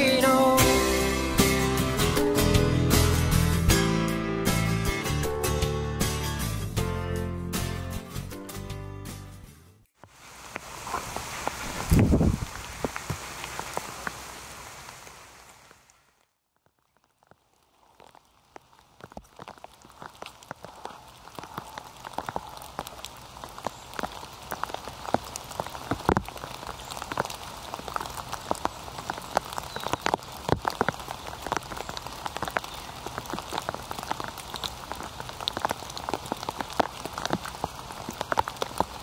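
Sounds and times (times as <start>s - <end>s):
rain hissing: 0.0s - 3.7s, 10.0s - 16.2s, 17.1s - 39.0s
raindrops hitting foliage: 10.0s - 39.0s.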